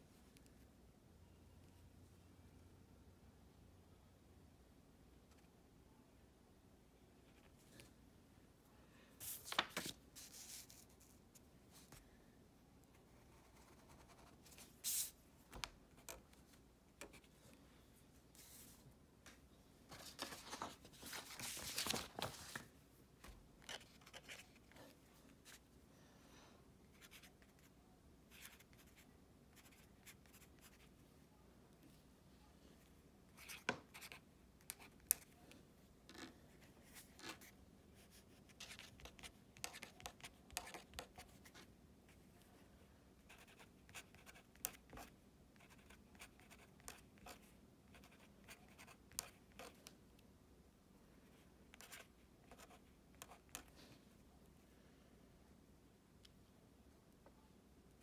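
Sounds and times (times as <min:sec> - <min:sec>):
paper rustle: 0:09.2 - 0:10.9, 0:19.9 - 0:22.7
marker scratching on paper: 0:28.3 - 0:30.9, 0:33.4 - 0:35.4, 0:43.3 - 0:49.8.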